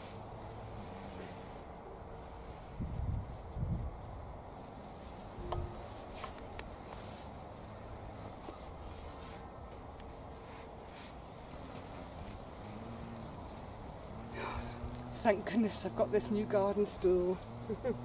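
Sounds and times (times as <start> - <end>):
faint high pulsing trill: 5.3 - 6.1
stool knocks and rustles: 5.4 - 6.4.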